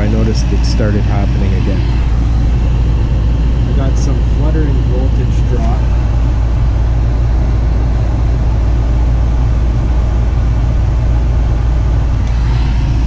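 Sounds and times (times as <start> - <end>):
gas furnace rumbling: 0.0 - 13.0.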